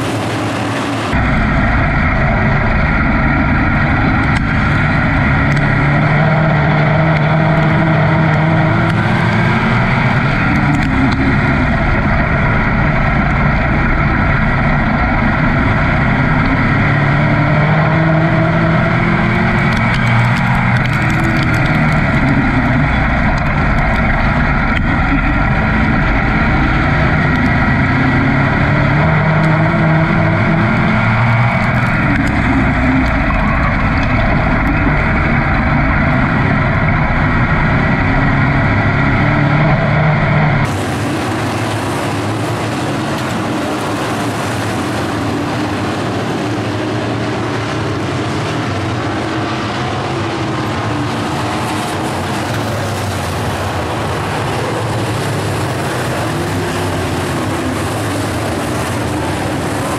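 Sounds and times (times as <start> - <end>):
race car engine revving: 0.0 - 59.9.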